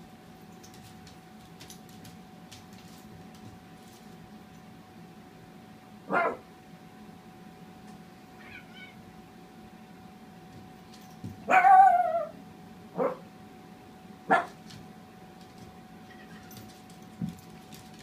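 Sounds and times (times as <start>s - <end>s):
small dog barking: 6.1s - 6.5s, 11.5s - 13.3s, 14.3s - 14.6s.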